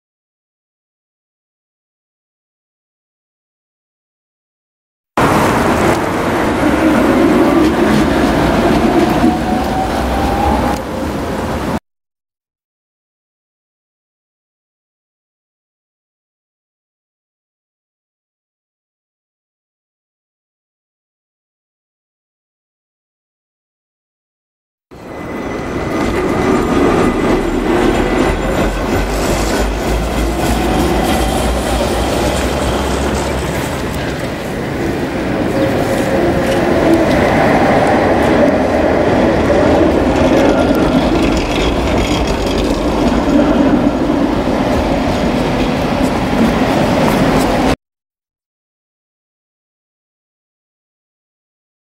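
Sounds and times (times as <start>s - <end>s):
tram wheels on rails: 5.2s - 11.8s, 24.9s - 47.8s
wheels clicking over rail joints: 39.2s - 47.8s.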